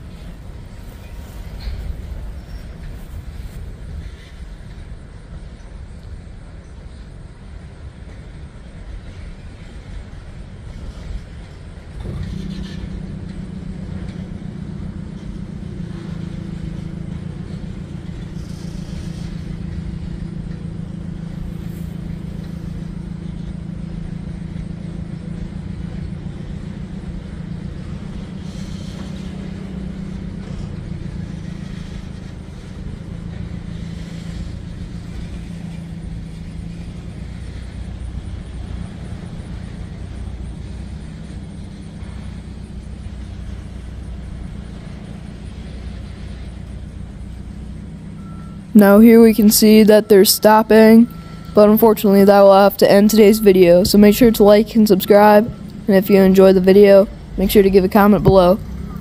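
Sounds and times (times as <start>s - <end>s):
diesel locomotive engine drone: 0.0s - 59.0s.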